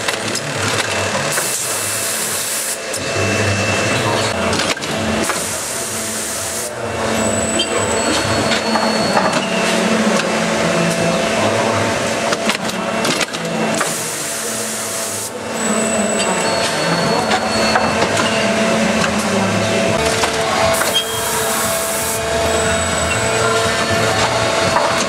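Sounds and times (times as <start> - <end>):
machine hum: 0.0 - 25.0
brief high whine: 20.0 - 25.0.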